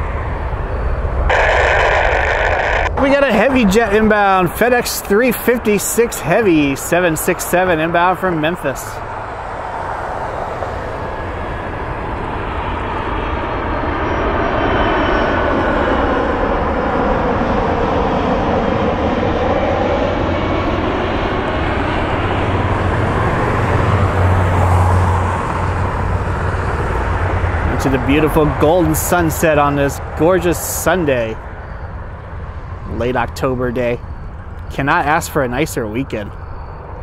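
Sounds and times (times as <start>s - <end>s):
jet plane passing overhead: 0.0s - 37.0s.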